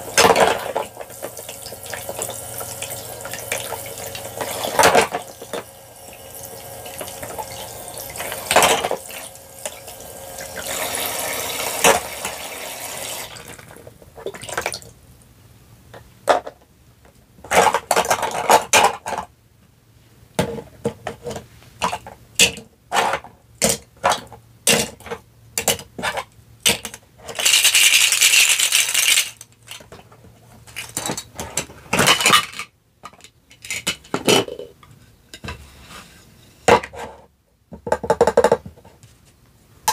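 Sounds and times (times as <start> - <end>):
toy faucet running water: 0.0 - 13.7
plastic clicks and knocks: 37.7 - 38.9.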